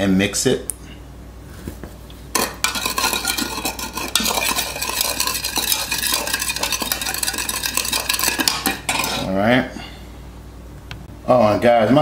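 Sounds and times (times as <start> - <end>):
spoon scraping plastic cup: 2.4 - 9.3.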